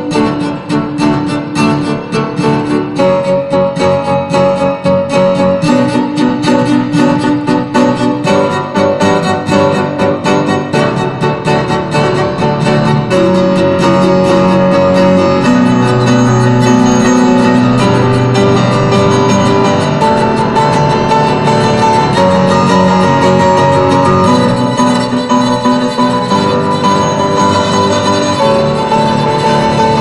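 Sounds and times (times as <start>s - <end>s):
piano notes: 0.0s - 30.0s
strings playing held lines: 0.0s - 30.0s.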